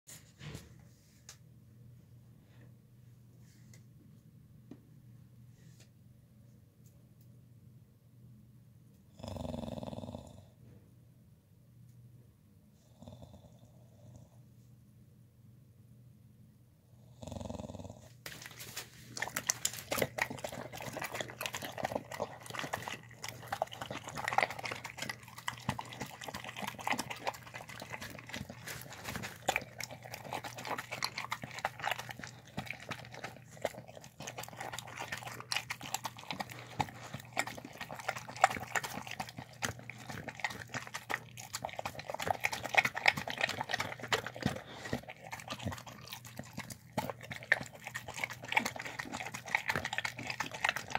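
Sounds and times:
dog chewing and lapping: 18.3s - 50.9s.

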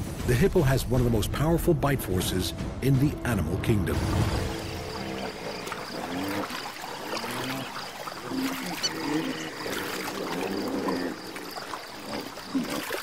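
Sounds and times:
water splashing and trickling: 2.8s - 13.0s
hippopotamus low wavering calls: 4.9s - 13.0s.

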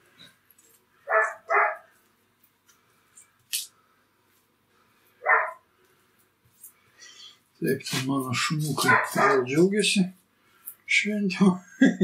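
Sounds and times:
dogs barking: 1.1s - 1.9s, 5.2s - 5.6s, 8.8s - 9.6s.

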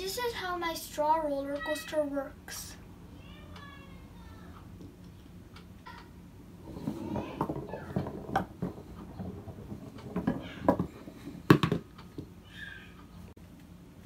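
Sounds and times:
ball rattling along straw track: 6.0s - 12.2s
ball dropping into container: 6.6s - 11.9s.

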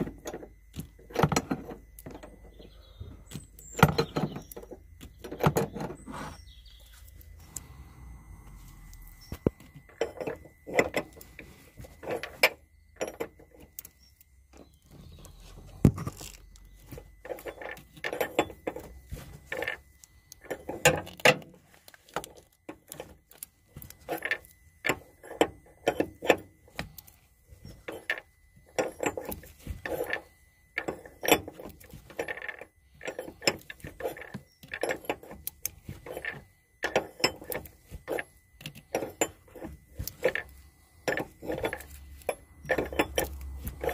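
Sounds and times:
metal spanner clicking: 16.1s - 43.9s.

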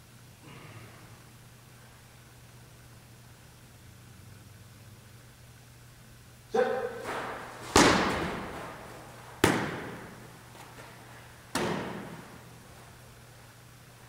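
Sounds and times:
sharp echoing thuds: 7.0s - 10.3s.

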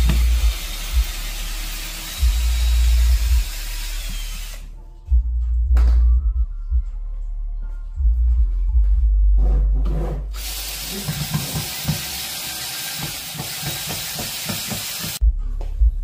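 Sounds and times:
cordless drill whirring: 0.0s - 4.6s.

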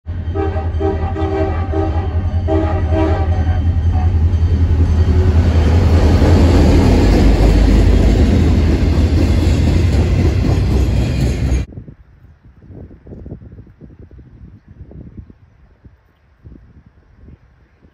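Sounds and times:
locomotive air horn blasts: 0.1s - 4.4s
freight cars rumbling past: 0.1s - 11.7s
locomotive engine running: 0.1s - 11.7s.

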